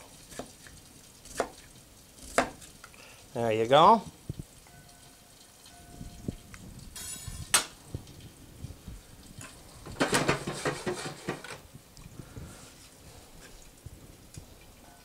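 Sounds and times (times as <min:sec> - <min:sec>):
frying pan lid clattering: 0:09.4 - 0:11.6.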